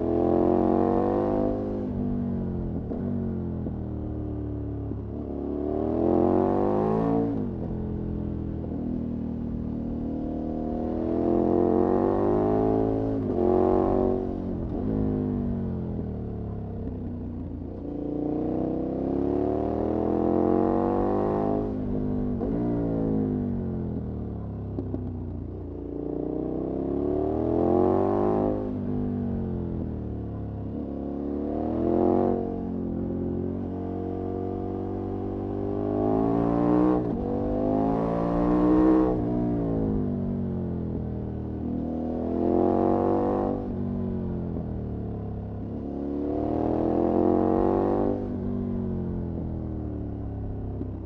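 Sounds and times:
motorcycle engine revving: 0:26.1 - 0:40.6, 0:41.6 - 0:51.0.

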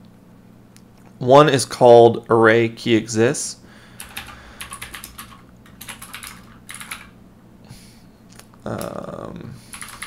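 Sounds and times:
typing on computer keyboard: 0:04.0 - 0:07.1, 0:09.7 - 0:10.0.

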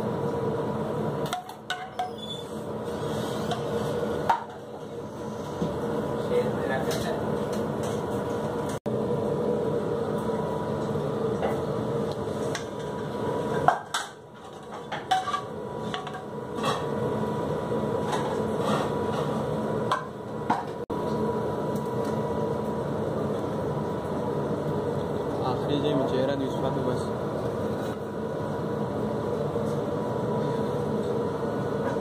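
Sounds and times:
kitchen equipment hum: 0:00.0 - 0:32.0
utensils clattering on metal counter: 0:01.2 - 0:02.5, 0:12.5 - 0:16.9.

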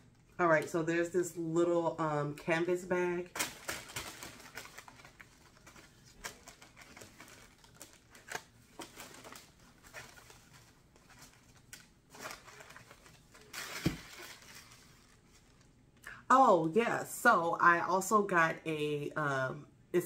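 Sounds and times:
tissue paper rustling: 0:03.3 - 0:15.7.

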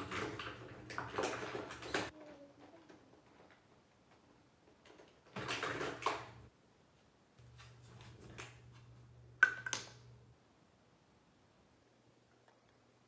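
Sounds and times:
plastic tube rustling: 0:00.0 - 0:06.4
cap clicking off tube: 0:09.4 - 0:10.0.

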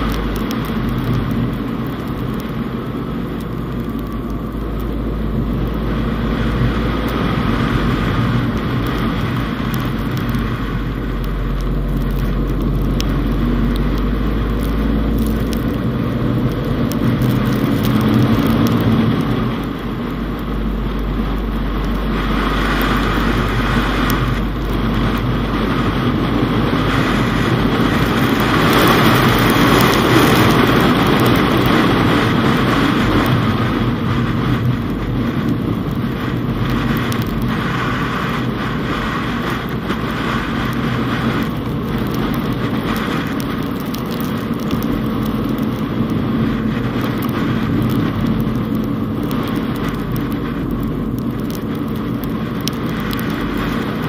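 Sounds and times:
car engine driving: 0:00.0 - 0:54.0.

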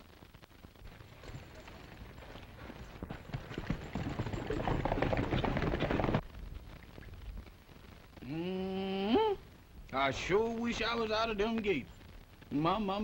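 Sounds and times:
horses galloping on dirt: 0:00.6 - 0:08.2.

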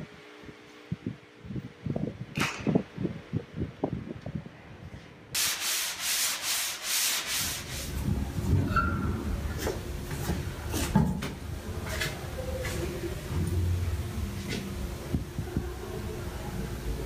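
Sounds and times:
sandpaper rubbing on wood: 0:05.4 - 0:08.0.

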